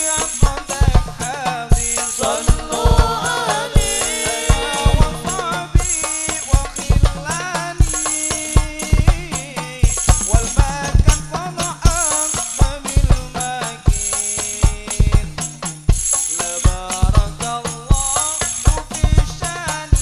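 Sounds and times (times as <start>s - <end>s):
frame drums beating fast rhythm: 0.0s - 20.0s
tambourine-like jingles: 0.0s - 20.0s
wavering melody line: 2.2s - 5.6s.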